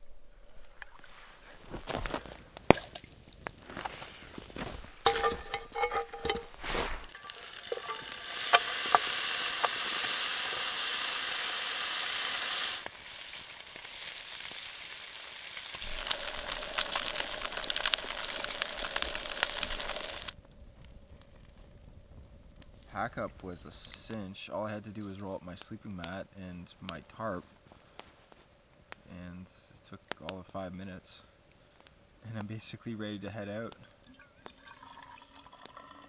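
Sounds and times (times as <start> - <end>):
food sizzling in a pan: 3.9 - 20.4
clinks and taps: 5.1 - 6.6.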